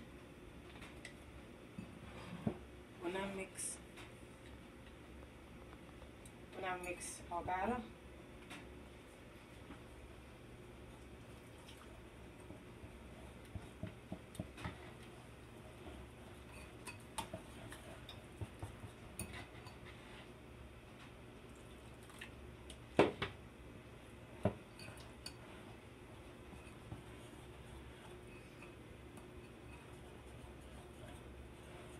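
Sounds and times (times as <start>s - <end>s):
whisk clinking against ceramic bowl: 16.4s - 19.8s.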